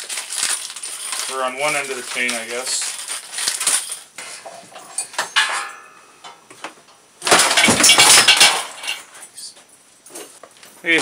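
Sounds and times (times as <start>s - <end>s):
metal tools clattering: 3.5s - 6.4s, 7.2s - 11.0s.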